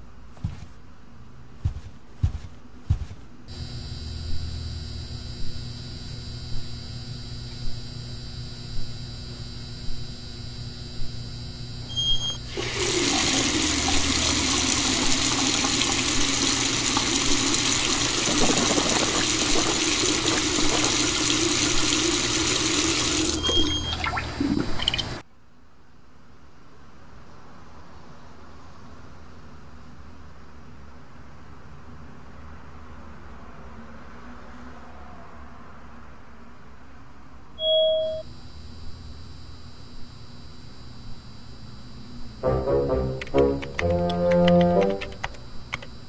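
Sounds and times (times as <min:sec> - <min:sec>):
soft footsteps: 0:00.0 - 0:00.9, 0:01.5 - 0:03.5
room hum: 0:00.0 - 0:31.2, 0:37.4 - 0:46.0
faucet water running into sink: 0:12.5 - 0:25.2.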